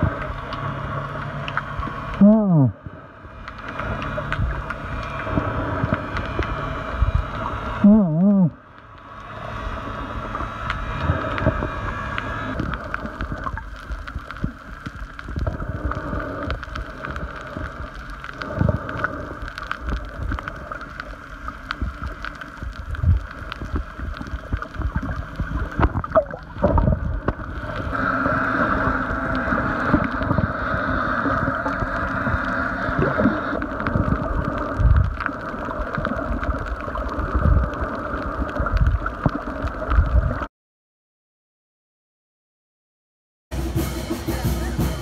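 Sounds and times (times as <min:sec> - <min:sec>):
steady hum: 0:00.0 - 0:38.2
underwater gurgling: 0:00.0 - 0:40.5
low thumps underwater: 0:24.6 - 0:27.5.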